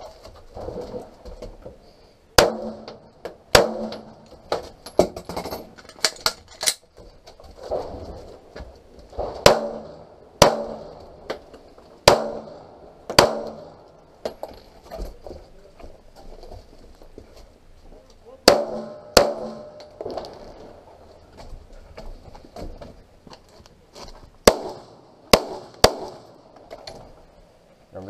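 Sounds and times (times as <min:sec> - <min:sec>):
pistol shots with ring: 0:02.4 - 0:04.1, 0:09.4 - 0:10.9, 0:12.0 - 0:13.8, 0:18.4 - 0:20.0, 0:24.4 - 0:26.3.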